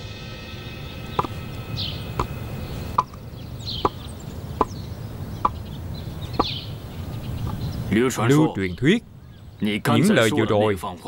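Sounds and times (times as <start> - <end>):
sandals clacking footsteps: 1.2 - 1.4.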